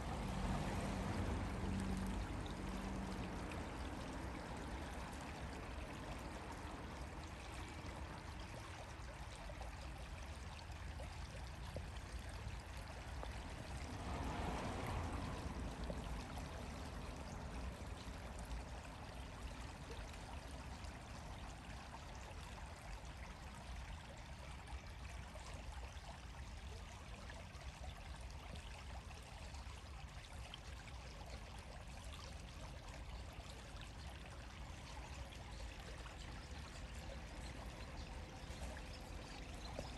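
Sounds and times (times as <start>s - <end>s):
rushing outdoor noise: 11.8s - 19.6s.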